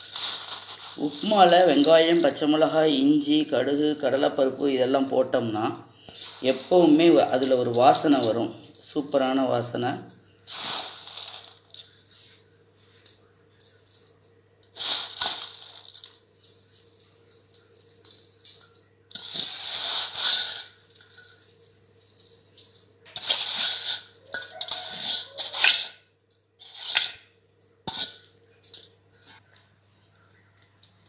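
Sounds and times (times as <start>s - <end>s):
dry noodles pouring into water: 10.4s - 25.4s.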